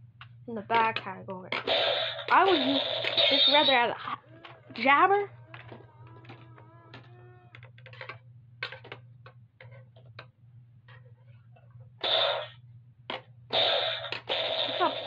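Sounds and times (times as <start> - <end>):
toy blaster puff: 12.0 - 12.5, 13.5 - 15.0.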